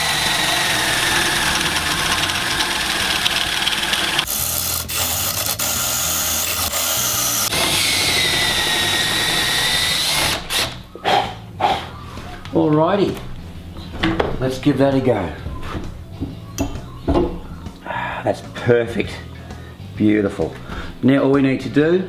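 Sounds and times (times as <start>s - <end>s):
cordless drill whining into wood: 0.0s - 10.8s.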